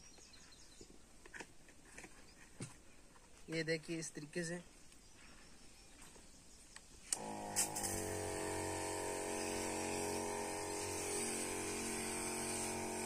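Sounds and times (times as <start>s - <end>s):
sprayer lance spraying: 7.0s - 13.0s
electric pump humming: 7.1s - 13.0s.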